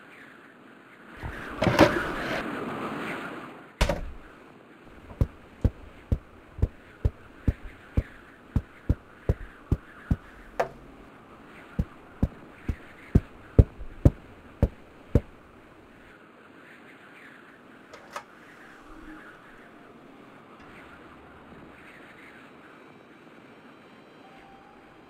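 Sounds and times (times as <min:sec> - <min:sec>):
sharp knocks: 0:03.8 - 0:04.3, 0:05.0 - 0:11.0, 0:11.8 - 0:15.4.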